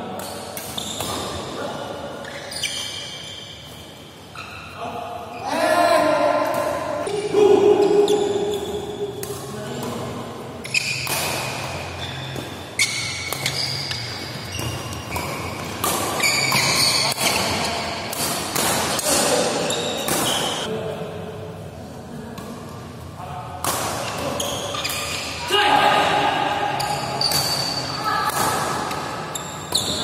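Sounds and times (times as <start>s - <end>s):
shoes squeaking on court floor: 0.2s - 1.5s, 2.2s - 5.5s, 10.6s - 18.6s, 19.6s - 20.7s, 24.0s - 25.4s, 26.7s - 28.0s, 28.8s - 30.0s
racket striking shuttlecock: 10.9s - 11.8s, 12.4s - 19.0s.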